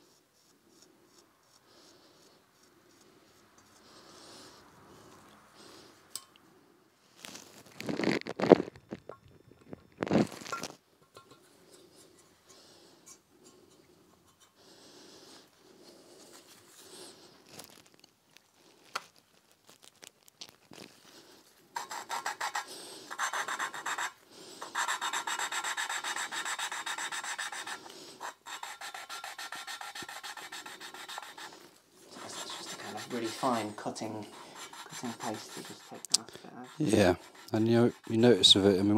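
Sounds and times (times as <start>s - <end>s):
valve lapping rasp: 21.8s - 38.9s.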